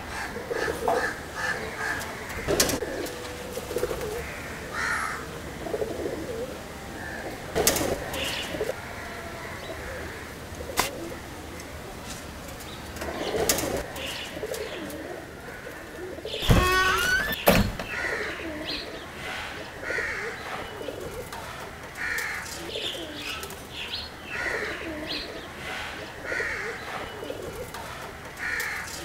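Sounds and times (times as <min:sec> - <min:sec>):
pigeons cooing: 0:00.0 - 0:29.0.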